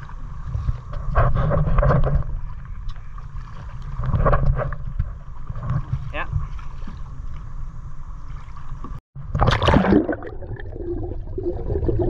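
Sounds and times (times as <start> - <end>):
paddle strokes splashing: 2.3 - 7.6.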